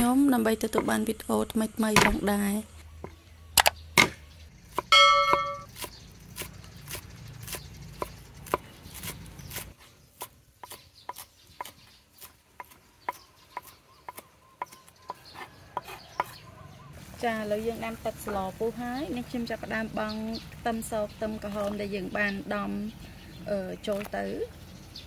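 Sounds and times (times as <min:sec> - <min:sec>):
knife chopping on wooden board: 0:04.8 - 0:16.4.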